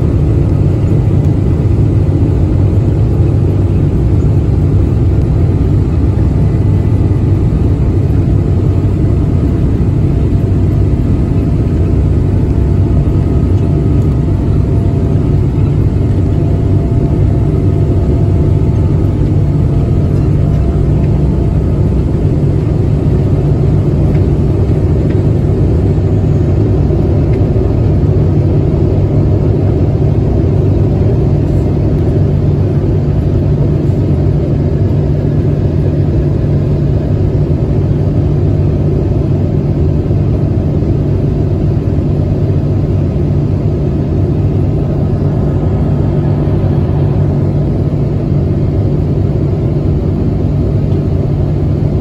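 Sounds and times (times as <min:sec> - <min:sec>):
jet engines rumbling in cabin: 0:00.0 - 0:52.0.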